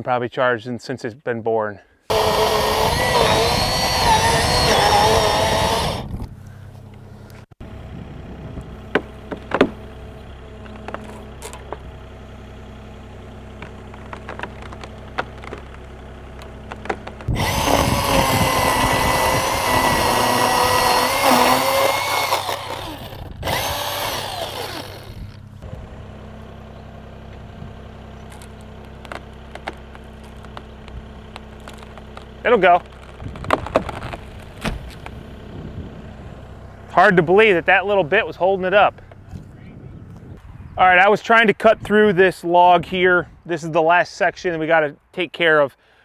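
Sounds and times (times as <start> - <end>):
chainsaw cutting wood: 2.1 - 6.3, 8.9 - 9.8, 13.6 - 15.8, 16.4 - 25.4, 28.3 - 35.1
diesel engine idling: 2.1 - 40.7
sharp knocks: 8.9 - 9.8.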